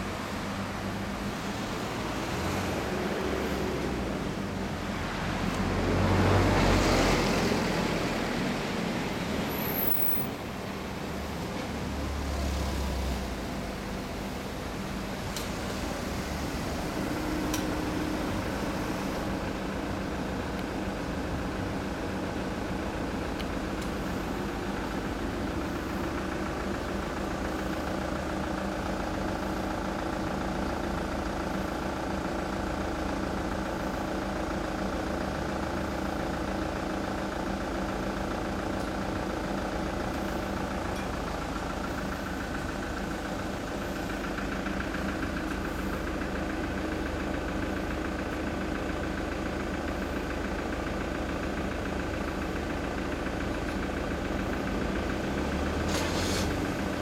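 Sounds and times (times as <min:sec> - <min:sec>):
motorcycle engine idling: 0:13.6 - 0:55.6.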